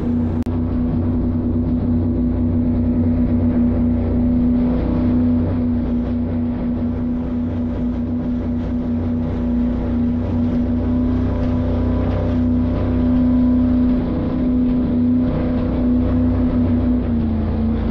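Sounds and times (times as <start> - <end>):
rush of wind: 0.0 - 17.9
rushing water: 0.0 - 17.9.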